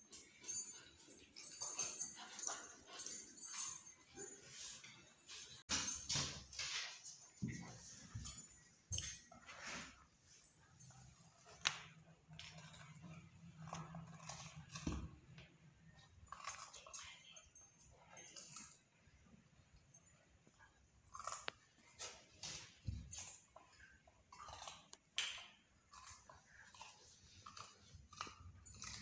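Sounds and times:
dog crunching gourd: 0:21.0 - 0:23.6, 0:24.3 - 0:29.0.

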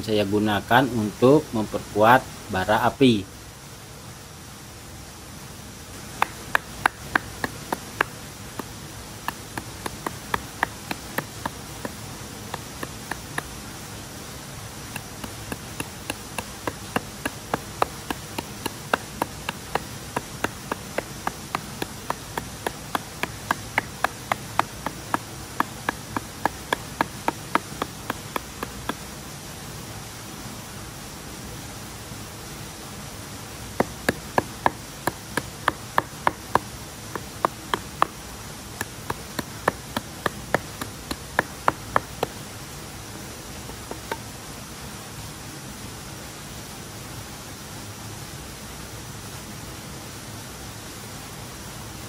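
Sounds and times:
insects humming: 0:00.0 - 0:30.1, 0:32.2 - 0:44.8
knife knocking cutting wood: 0:06.2 - 0:13.5, 0:15.0 - 0:29.0, 0:33.8 - 0:38.1, 0:38.8 - 0:42.4, 0:43.7 - 0:44.2.

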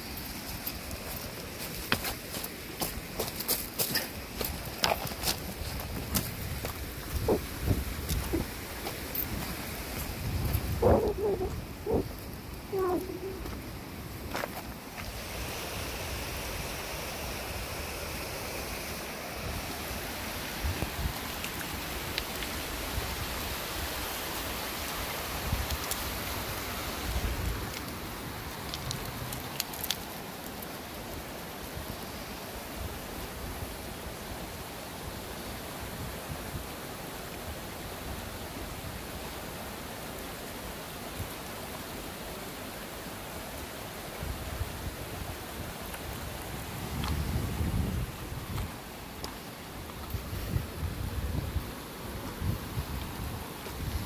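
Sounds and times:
river rushing over rocks: 0:00.0 - 0:54.0
wind buffeting microphone: 0:05.2 - 0:13.6, 0:46.6 - 0:48.8.

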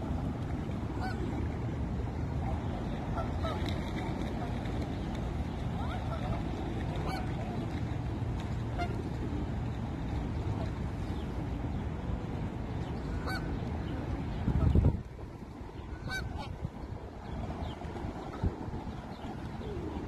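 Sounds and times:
geese honking: 0:07.0 - 0:07.4, 0:13.2 - 0:13.5, 0:15.9 - 0:16.6.

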